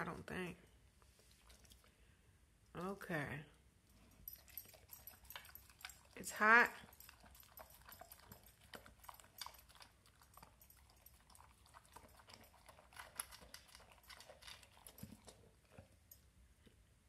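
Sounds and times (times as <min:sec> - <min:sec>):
dog chewing and licking: 0:01.0 - 0:02.0, 0:03.9 - 0:16.4.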